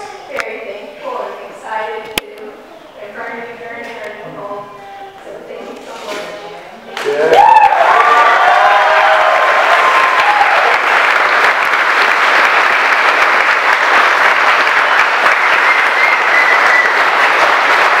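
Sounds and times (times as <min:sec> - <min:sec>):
crowd applause: 0:06.9 - 0:18.0.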